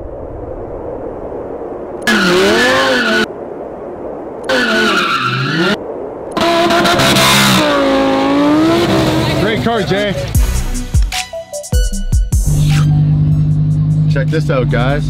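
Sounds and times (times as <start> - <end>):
tires skidding and squealing: 2.0 - 3.3, 4.5 - 5.8
car engine revving hard: 2.1 - 3.3, 6.4 - 9.6.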